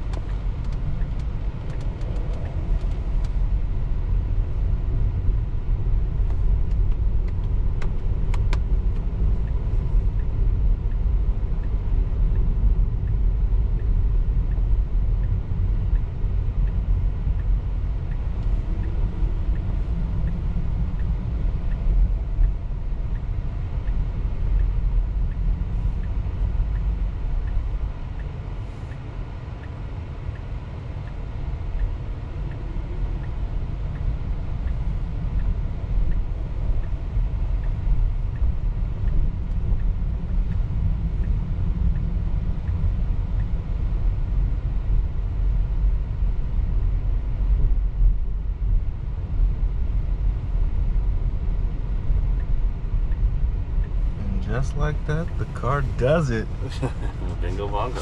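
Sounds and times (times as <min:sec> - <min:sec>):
tyre and road noise: 0:00.0 - 0:10.2, 0:53.8 - 0:58.0.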